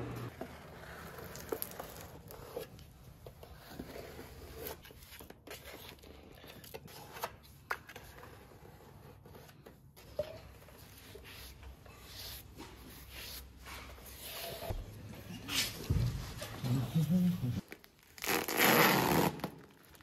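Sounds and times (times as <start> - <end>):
blade scraping grout: 0.3 - 9.7
plastic tape crinkling: 17.6 - 20.0.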